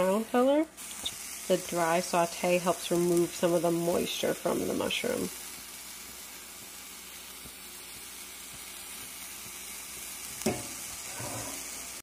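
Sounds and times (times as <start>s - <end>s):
mushrooms sizzling in a pan: 0.0s - 12.0s
brief knock: 10.4s - 10.8s.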